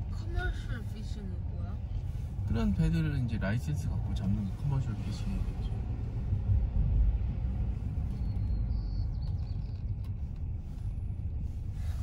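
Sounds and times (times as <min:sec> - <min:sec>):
car road rumble from inside: 0:00.0 - 0:12.0.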